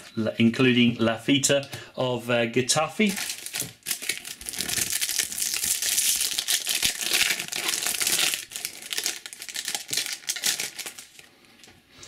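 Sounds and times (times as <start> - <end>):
foil wrapper crinkling and tearing: 3.0 - 11.3.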